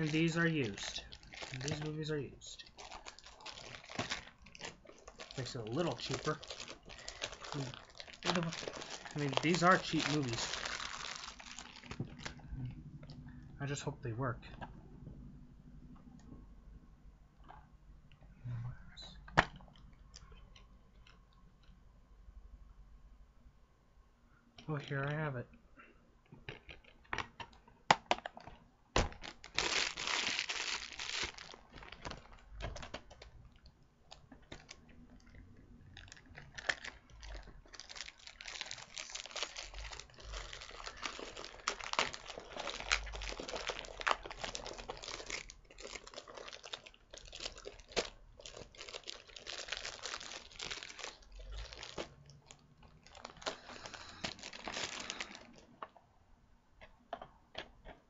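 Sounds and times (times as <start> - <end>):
plastic case crinkling and clicking: 26.3 - 35.4.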